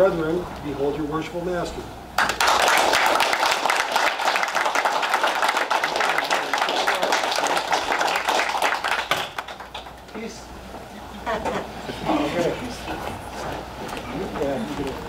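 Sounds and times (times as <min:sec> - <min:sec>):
audience applauding: 0:02.2 - 0:10.3.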